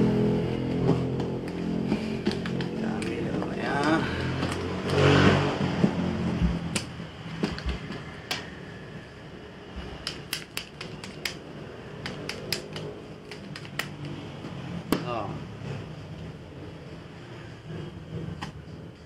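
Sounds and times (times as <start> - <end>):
dominoes clicking on table: 2.2 - 5.0, 12.0 - 14.2.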